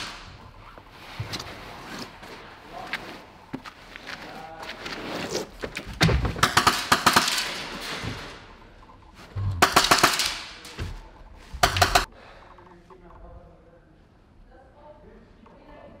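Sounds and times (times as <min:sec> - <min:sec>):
airsoft guns firing bursts: 0:06.4 - 0:07.8, 0:09.6 - 0:10.6, 0:11.6 - 0:12.1.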